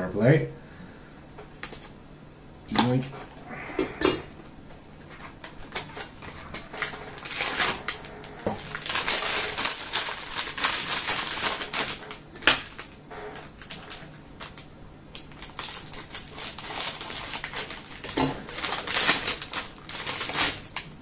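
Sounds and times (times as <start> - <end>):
packaging crinkling and rustling: 1.4 - 1.9, 4.7 - 21.0.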